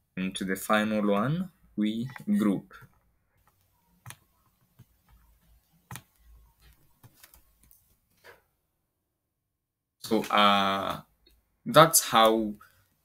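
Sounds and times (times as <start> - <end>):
computer mouse clicks: 2.0 - 8.0.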